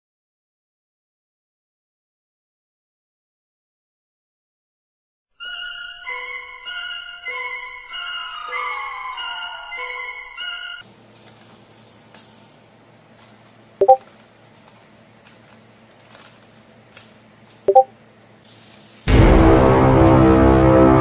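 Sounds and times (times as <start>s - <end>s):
notification pings: 17.7s - 17.9s
loud music: 19.1s - 21.0s.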